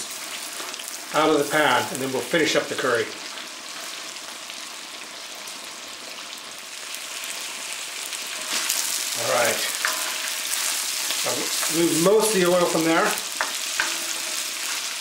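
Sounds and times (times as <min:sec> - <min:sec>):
chicken sizzling in a wok: 0:00.0 - 0:15.0
spatula stirring: 0:08.3 - 0:15.0.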